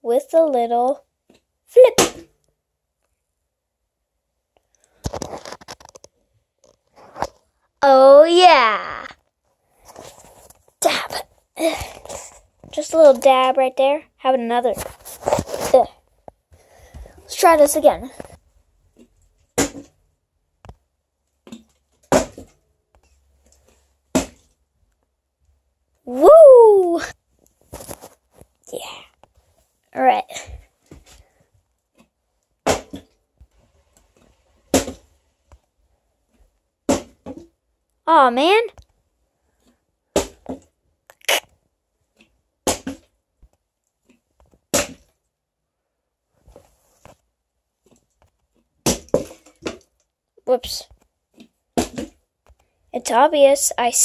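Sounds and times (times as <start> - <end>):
plastic bottle landing: 19.6 - 20.0, 21.5 - 22.6, 24.1 - 24.4, 32.6 - 33.1, 34.7 - 35.0, 36.9 - 37.5, 48.8 - 49.8
plastic bottle thudding on floor: 22.1 - 22.5.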